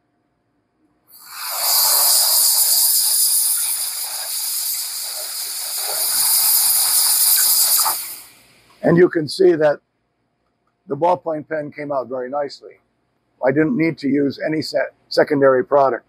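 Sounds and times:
steam gun hissing: 0:01.1 - 0:08.7.

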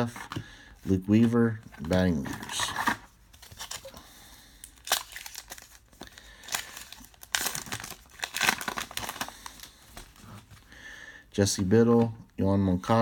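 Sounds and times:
card pack wrapper crinkling and tearing: 0:00.0 - 0:10.4.

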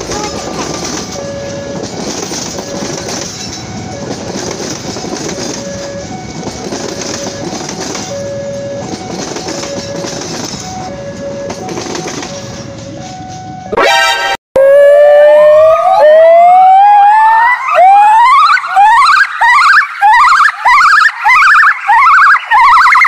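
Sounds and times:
train wheels rumbling on rails: 0:00.0 - 0:13.8.

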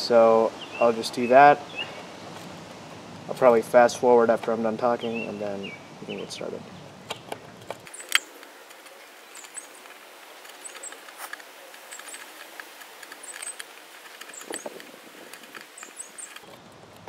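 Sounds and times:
drill bit scratching plastic: 0:07.1 - 0:16.6.

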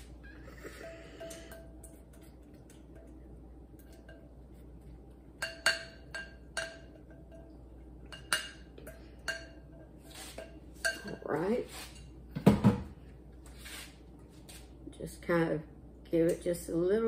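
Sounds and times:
spatula clinking against glass: 0:00.8 - 0:02.0, 0:05.4 - 0:11.3
spatula scraping glass bowl: 0:10.0 - 0:12.0.

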